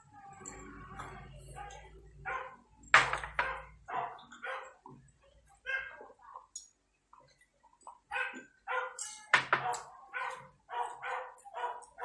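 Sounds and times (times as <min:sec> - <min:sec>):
dog barking: 0:01.6 - 0:02.6, 0:03.4 - 0:04.9, 0:05.6 - 0:06.1, 0:08.1 - 0:12.0.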